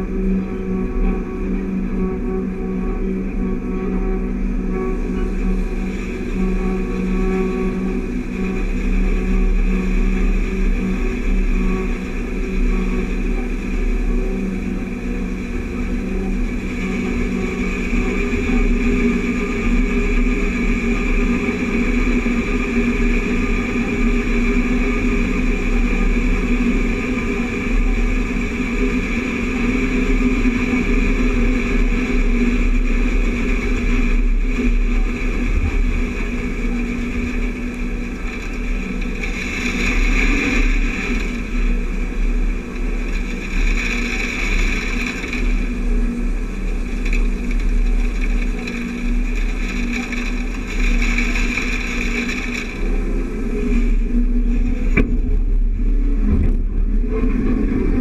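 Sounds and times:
combine harvester running: 0.0 - 58.0
grain pouring from auger: 0.0 - 58.0
tractor engine: 32.6 - 57.6.

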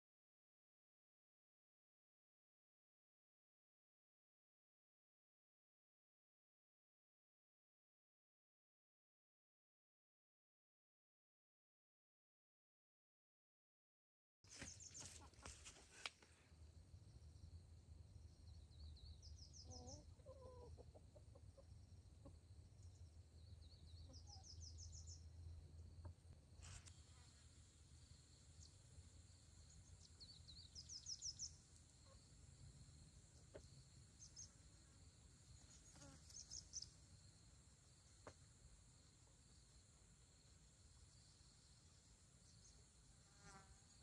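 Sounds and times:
chicken clucking: 19.7 - 22.4
bird chirp trills: 21.8 - 26.1, 28.4 - 32.8.

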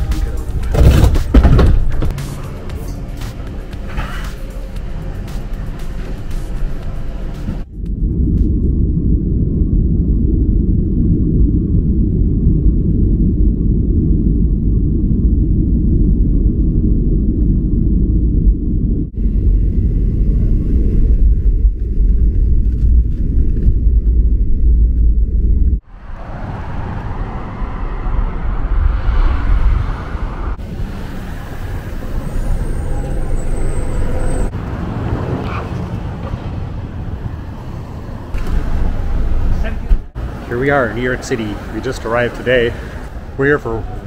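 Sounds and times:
vehicles passing: 0.0 - 9.6, 25.8 - 44.0
jet airliner cabin rumble: 0.0 - 34.6, 36.4 - 44.0
high-pitched squeal: 26.0 - 34.5.

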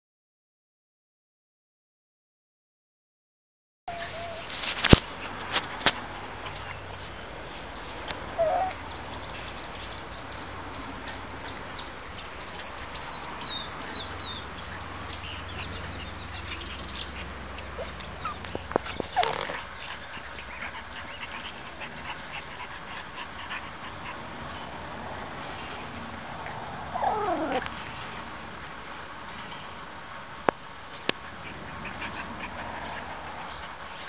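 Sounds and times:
puppy yelp: 3.9 - 4.5, 8.4 - 8.8, 17.8 - 19.7, 26.9 - 27.6
puppies whimpering and yipping: 3.9 - 4.6, 8.3 - 8.8, 17.7 - 24.2, 26.9 - 27.7.

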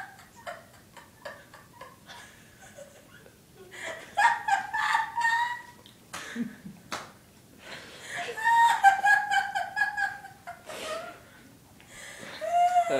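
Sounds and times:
woman giggling: 0.0 - 6.8, 8.2 - 11.2.

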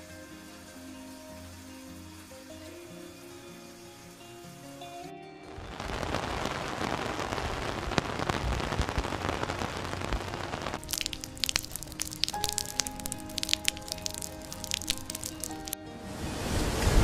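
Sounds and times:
heavy rain hissing: 0.0 - 4.9, 5.5 - 17.0
water drops splashing: 10.8 - 15.8.

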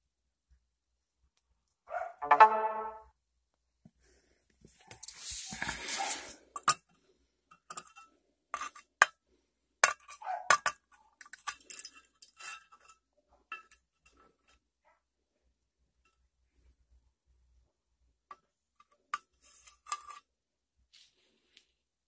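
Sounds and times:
rustling handling noise: 4.5 - 6.6.

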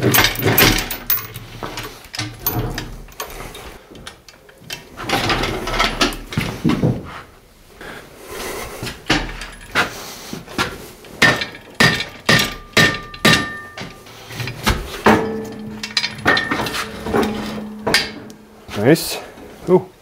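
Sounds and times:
metal clanks from chains and engine: 0.0 - 6.3, 9.1 - 9.9, 11.2 - 19.2
low metallic ring: 15.1 - 18.7.

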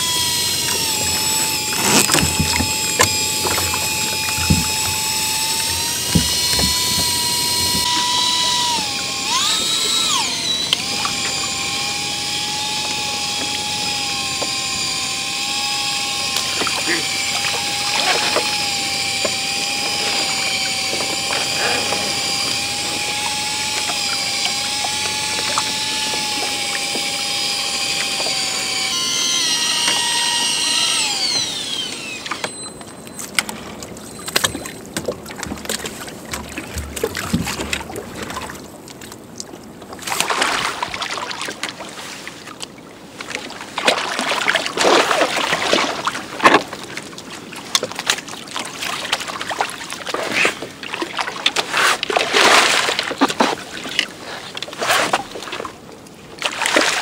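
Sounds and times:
electric outboard motor whine: 0.0 - 38.8
water splashing: 33.4 - 57.0.

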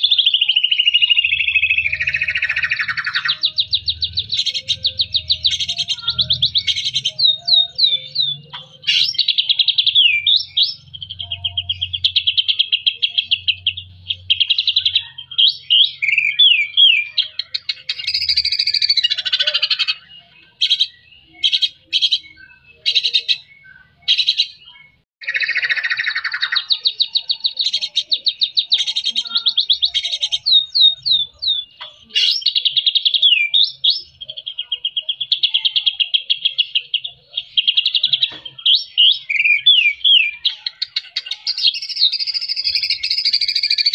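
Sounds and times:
songbird singing trills and whistles: 0.0 - 43.9.

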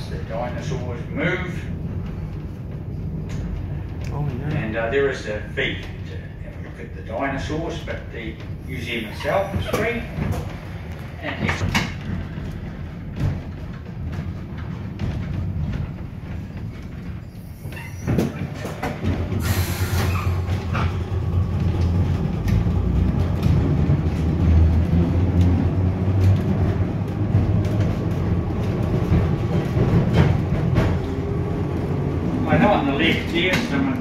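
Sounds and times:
tram rumbling on rails: 0.0 - 34.0
tram knock: 7.7 - 34.0
air brake hiss: 19.4 - 20.4.

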